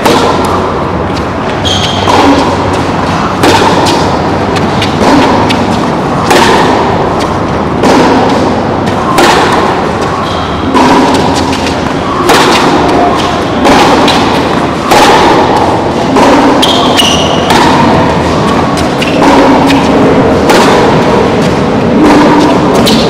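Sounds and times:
tennis ball struck by rackets: 0:00.0 - 0:23.0.

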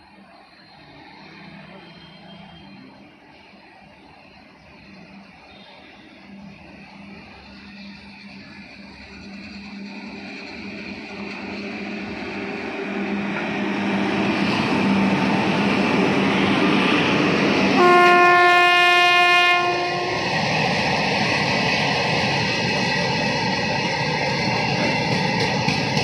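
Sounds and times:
locomotive running noise: 0:00.0 - 0:26.0
locomotive horn blast: 0:17.7 - 0:20.3
train wheel clicks: 0:24.2 - 0:26.0.

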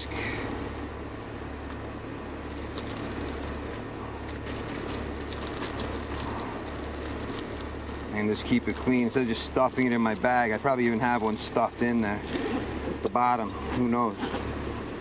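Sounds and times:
low mechanical hum: 0:00.0 - 0:15.0
face mask rustling and crinkling: 0:02.4 - 0:10.7.

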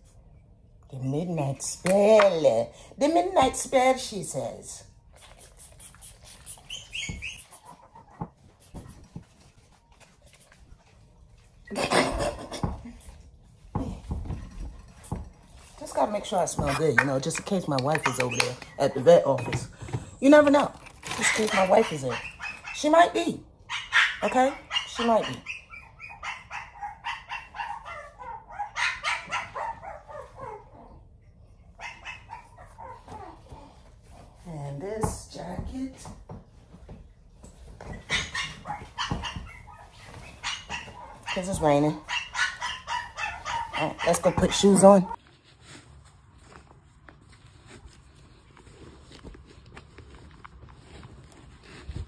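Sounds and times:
dog barking and yipping: 0:17.9 - 0:19.2, 0:21.0 - 0:30.8, 0:31.8 - 0:33.5, 0:37.9 - 0:45.2.

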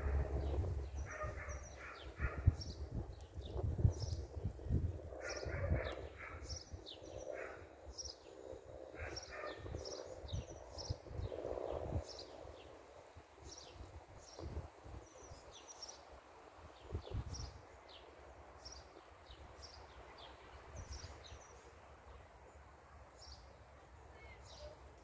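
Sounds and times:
wind buffeting the microphone: 0:00.0 - 0:07.0, 0:13.8 - 0:15.5, 0:16.8 - 0:17.6
small birds chirping: 0:00.0 - 0:12.8.

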